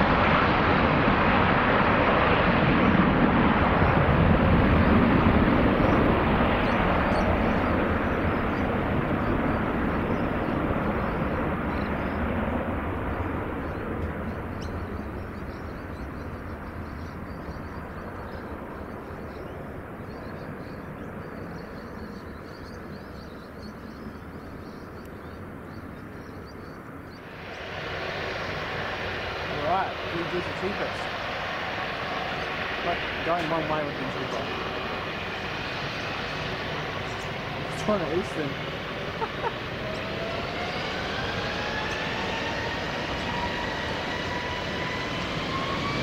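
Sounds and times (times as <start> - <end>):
jet aircraft engines at takeoff: 0.0 - 46.0
steady engine noise: 27.1 - 46.0.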